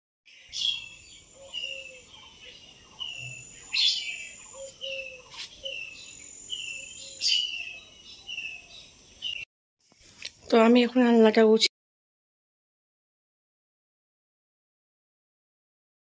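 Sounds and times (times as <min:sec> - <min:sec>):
birds chirping: 0:00.3 - 0:09.5
sharp bird calls: 0:00.3 - 0:09.5.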